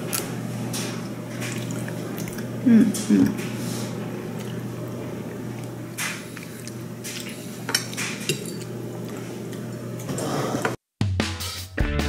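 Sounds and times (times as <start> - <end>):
tableware clinking: 7.1 - 8.8.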